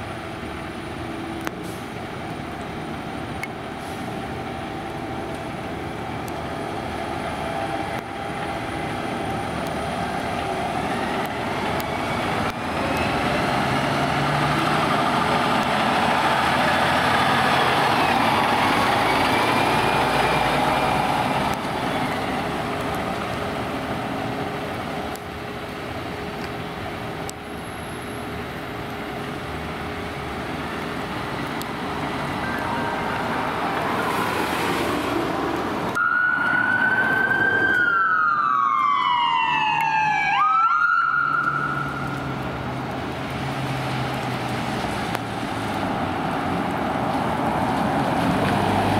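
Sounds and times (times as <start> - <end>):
fire engine driving off: 0.0 - 48.9
fire engine siren: 2.7 - 23.8, 29.3 - 34.9, 35.9 - 48.9
ambulance electronic siren wailing: 36.0 - 42.2.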